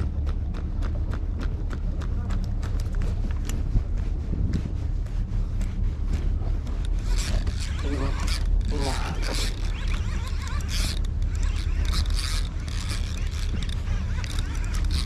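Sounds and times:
steady low rumble: 0:00.0 - 0:15.0
fishing reel whirring and creaking: 0:06.6 - 0:15.0.

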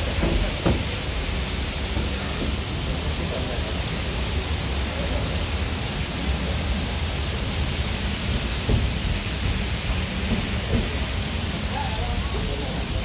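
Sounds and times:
rain hissing: 0:00.0 - 0:13.0.

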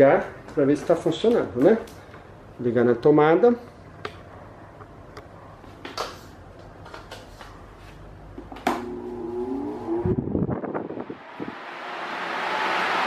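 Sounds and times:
fan motor humming: 0:08.8 - 0:13.0.

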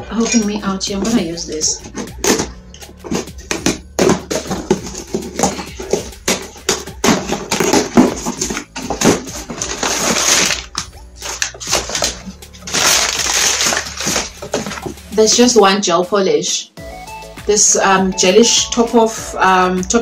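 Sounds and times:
cardboard tearing and crinkling: 0:01.8 - 0:15.0.

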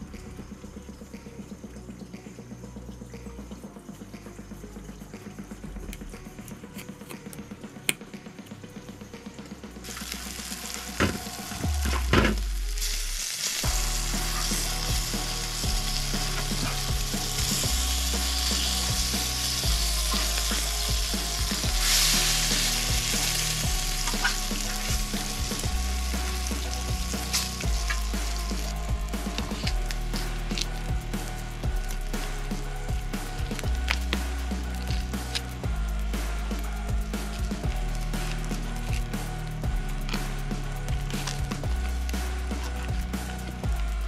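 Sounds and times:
food sizzling in a pan: 0:09.8 - 0:32.3.

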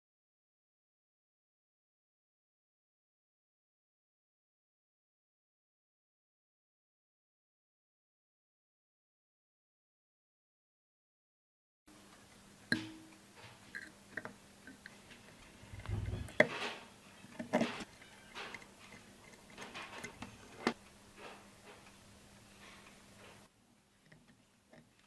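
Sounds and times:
faint steady hum: 0:11.9 - 0:25.0
low bump: 0:15.6 - 0:16.4.

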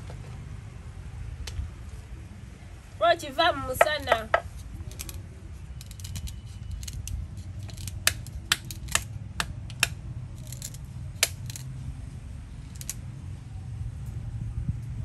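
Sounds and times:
wooden stick knocking on nut: 0:03.8 - 0:05.2, 0:05.8 - 0:11.6
clicks and scrapes of nuts: 0:04.0 - 0:11.7, 0:12.7 - 0:13.0.

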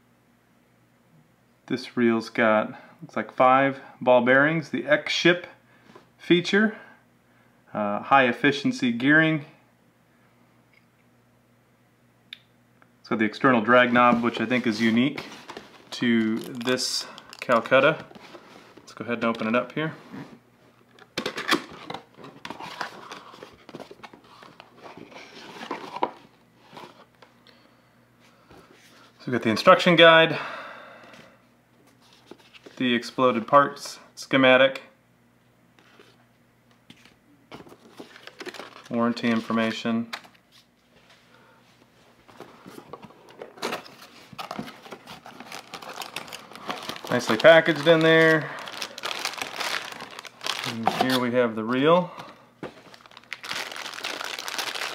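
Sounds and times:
cardboard packaging rustling: 0:13.6 - 0:27.1, 0:37.0 - 0:40.7, 0:42.2 - 0:51.8, 0:52.6 - 0:54.9.

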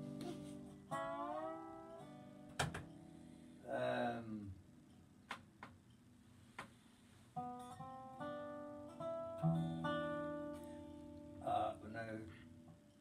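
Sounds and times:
resonator guitar plucked notes: 0:00.0 - 0:04.4, 0:07.4 - 0:12.9.

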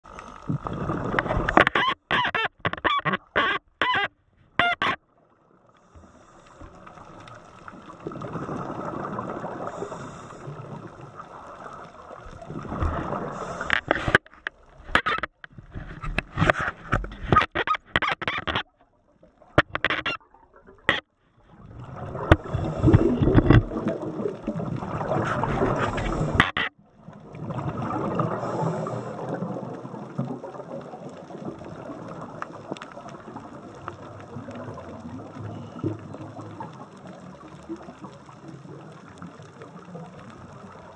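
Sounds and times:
exhaled bubbles rushing: 0:00.6 - 0:01.5, 0:07.7 - 0:09.8, 0:21.5 - 0:26.4, 0:27.2 - 0:35.4
regulator breathing underwater: 0:05.8 - 0:07.0, 0:09.6 - 0:10.8, 0:13.1 - 0:14.2, 0:22.4 - 0:23.4, 0:25.4 - 0:26.5, 0:28.2 - 0:29.5
short clicks and knocks: 0:19.6 - 0:20.2.

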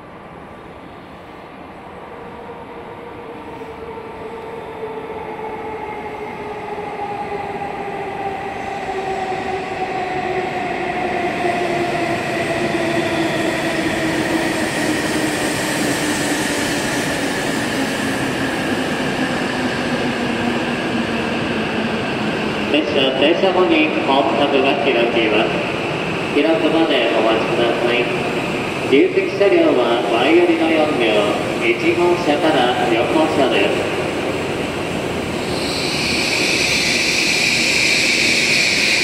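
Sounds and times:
rush of passing train: 0:00.0 - 0:39.0.

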